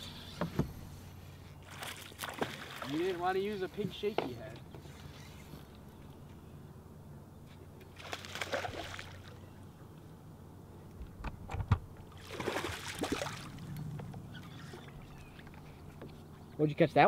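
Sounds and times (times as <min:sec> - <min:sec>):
fish splashing in water: 0:01.6 - 0:03.0, 0:07.9 - 0:09.4, 0:12.1 - 0:13.7.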